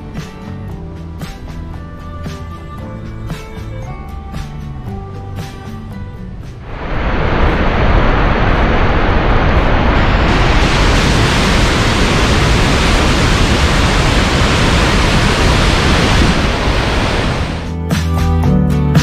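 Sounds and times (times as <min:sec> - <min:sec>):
waterfall rushing: 0:06.6 - 0:17.7.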